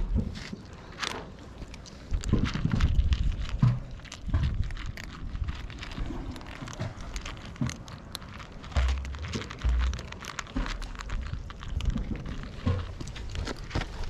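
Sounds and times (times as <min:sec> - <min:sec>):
cats crunching dry kibble: 0:00.0 - 0:14.0
heavy low thumps: 0:08.7 - 0:13.1.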